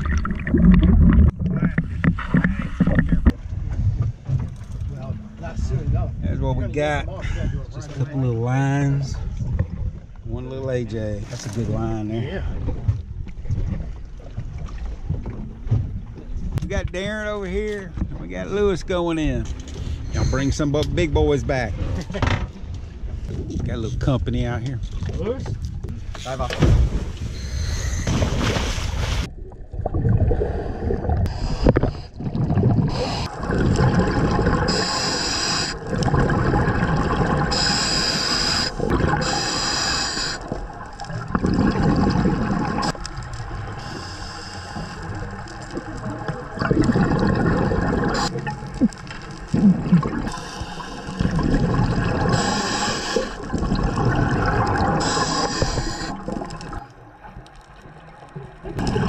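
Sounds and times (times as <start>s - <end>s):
exhaled bubbles rumbling: 0.0s - 8.2s, 9.1s - 17.1s, 22.8s - 59.0s
regulator inhale hiss: 37.5s - 40.4s, 43.8s - 45.2s, 50.3s - 51.2s, 52.3s - 53.4s, 55.0s - 56.2s.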